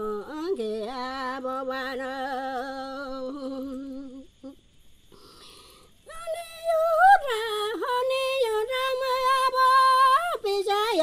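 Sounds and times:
woman singing unaccompanied: 0:00.0 - 0:04.7, 0:06.0 - 0:11.0.

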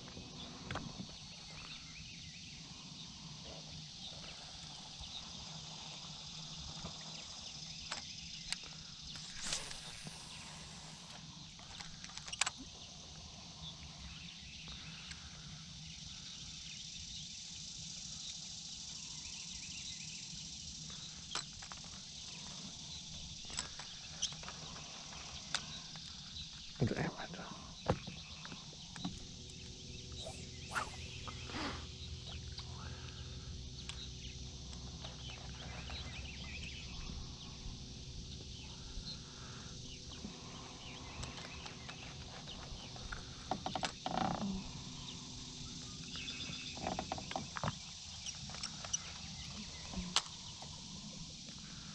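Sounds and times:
high insect buzz: 0:00.1 - 0:51.9
low hum: 0:29.2 - 0:41.1.

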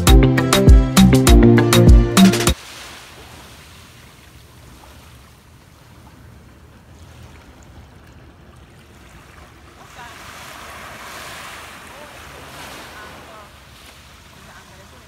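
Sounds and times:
surf washing on beach: 0:02.6 - 0:06.0, 0:08.9 - 0:15.0.

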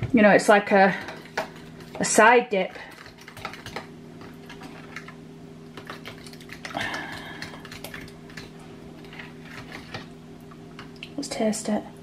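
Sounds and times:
steady low hum: 0:00.0 - 0:12.0
fork scraping plastic tub: 0:05.9 - 0:10.1.

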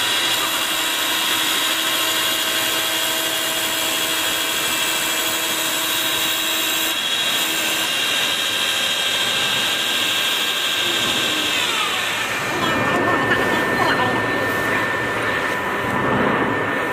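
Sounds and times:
lathe machine whine: 0:00.0 - 0:16.9
low hum: 0:12.2 - 0:16.9.

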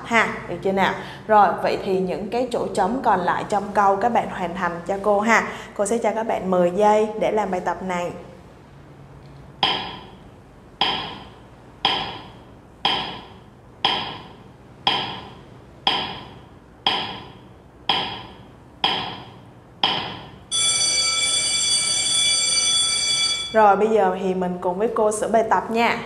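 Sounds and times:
ringing timer ticks: 0:10.8 - 0:11.3, 0:12.9 - 0:19.2
alarm clock ringing: 0:20.5 - 0:23.6.

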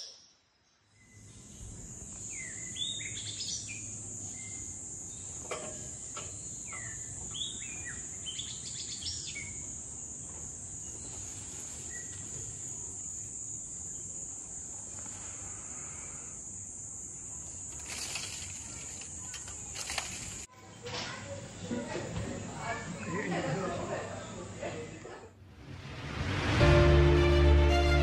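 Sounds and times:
birds chirping: 0:00.0 - 0:09.7.

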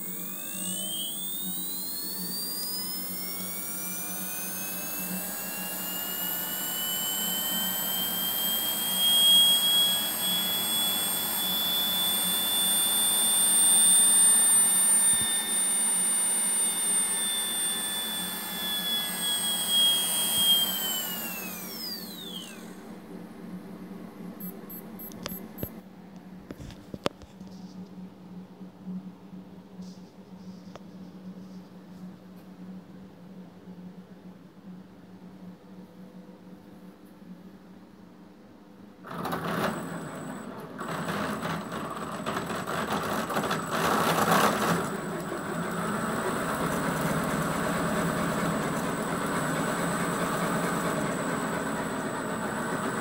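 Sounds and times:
electric motor whine: 0:00.0 - 0:23.1, 0:39.1 - 0:53.0.

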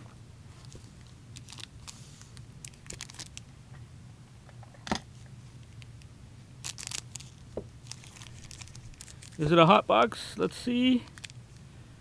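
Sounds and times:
card pack wrapper crinkling: 0:00.6 - 0:03.4, 0:06.6 - 0:09.6, 0:11.0 - 0:11.4.

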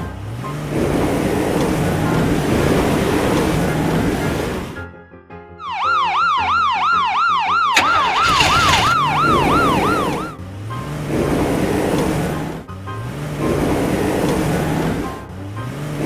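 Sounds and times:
toy siren yelping: 0:05.6 - 0:10.4.

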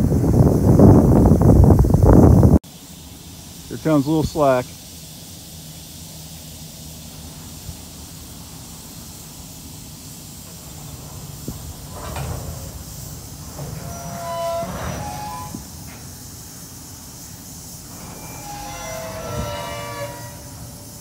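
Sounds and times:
steel wheels squealing on rails: 0:02.7 - 0:21.0
freight cars rumbling on track: 0:06.1 - 0:21.0.

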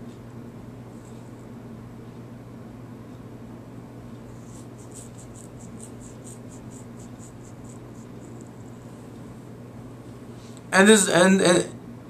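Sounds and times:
steady low hum: 0:00.0 - 0:12.0
fingers scratching a beard: 0:04.3 - 0:08.6.

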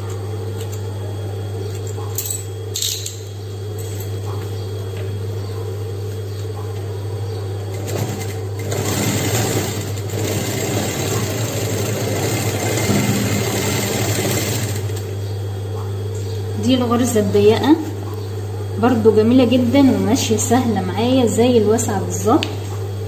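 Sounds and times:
sewing machine humming: 0:07.7 - 0:15.2
sewing machine stitching leather: 0:07.8 - 0:15.0.

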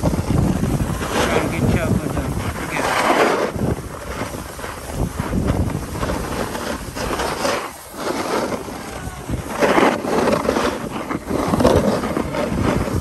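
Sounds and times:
snowboard edge scraping snow: 0:00.0 - 0:13.0
wind buffeting microphone: 0:00.0 - 0:13.0.

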